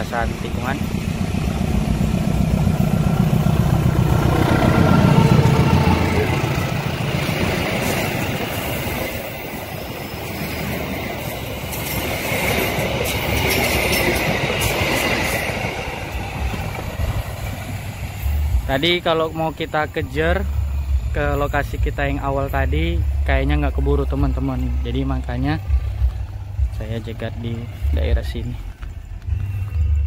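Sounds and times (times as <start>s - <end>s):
train wheel clatter: 0.0s - 20.0s
locomotive engine rumble: 0.0s - 30.0s
train wheels squealing: 7.3s - 16.6s.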